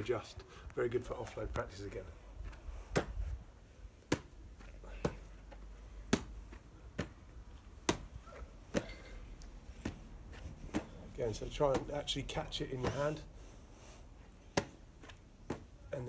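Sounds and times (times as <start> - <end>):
ball slapping into hands: 2.4 - 3.3, 4.0 - 13.2, 14.4 - 15.8.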